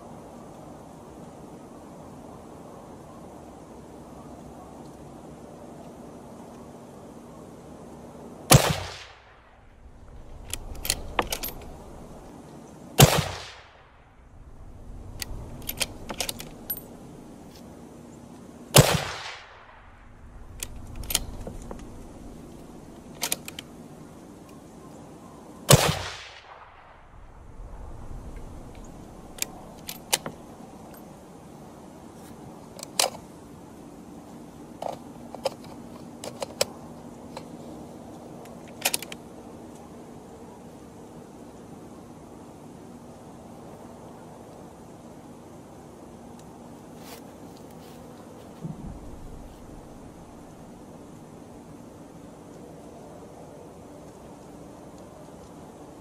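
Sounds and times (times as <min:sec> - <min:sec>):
rifle shots with echo: 0:08.5 - 0:09.5, 0:13.0 - 0:13.9, 0:18.8 - 0:22.4, 0:25.7 - 0:27.4
metallic clicks of rifle handling: 0:10.1 - 0:12.3, 0:14.8 - 0:17.7, 0:20.4 - 0:23.8, 0:28.3 - 0:31.2, 0:32.7 - 0:33.3, 0:34.8 - 0:37.6, 0:38.4 - 0:39.2.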